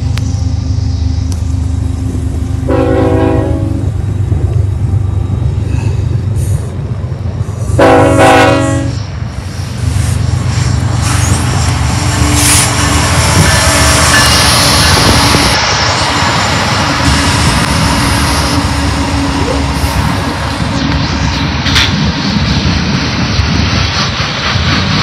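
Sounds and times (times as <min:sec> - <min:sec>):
locomotive engines rumbling: 0:00.0 - 0:25.0
locomotive air horn blasts: 0:02.6 - 0:03.9, 0:07.8 - 0:09.0.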